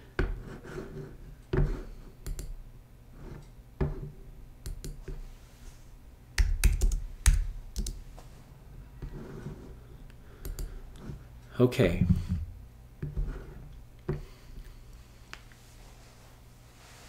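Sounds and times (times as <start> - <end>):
typing on computer keyboard: 6.4 - 8.0.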